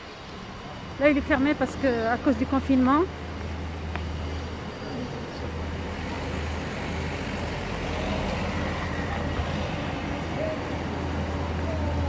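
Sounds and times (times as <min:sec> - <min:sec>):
city traffic noise: 0:00.0 - 0:12.0
car passing close by: 0:05.7 - 0:11.2.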